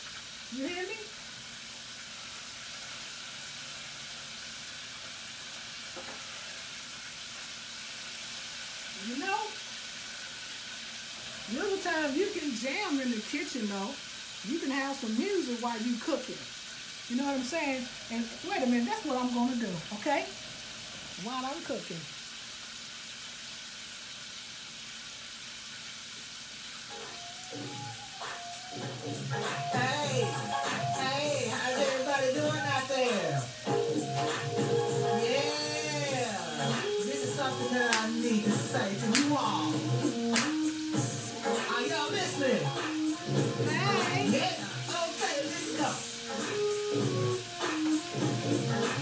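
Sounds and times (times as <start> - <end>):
chicken frying in oil: 0.0 - 49.0
music: 26.9 - 49.0.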